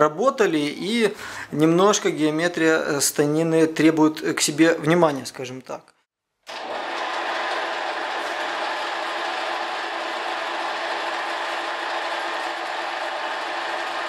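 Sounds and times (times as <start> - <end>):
metal lathe whirring: 6.5 - 14.0.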